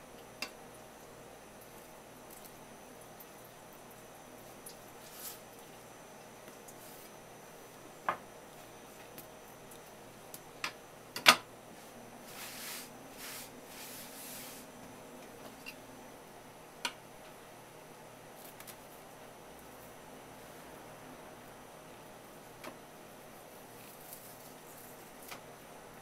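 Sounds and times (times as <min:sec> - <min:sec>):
cloth wiping board: 0:11.8 - 0:14.7.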